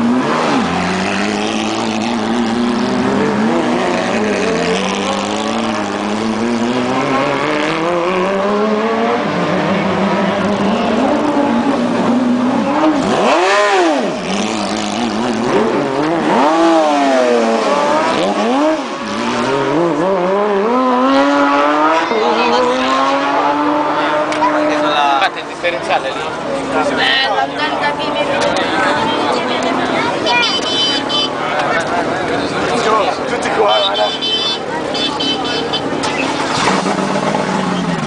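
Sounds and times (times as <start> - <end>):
race car engines running slowly: 23.4 - 38.0.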